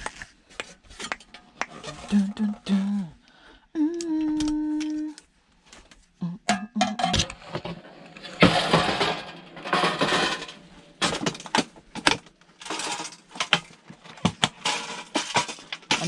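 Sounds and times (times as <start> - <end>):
scrap metal crunching and scraping: 7.2 - 16.0.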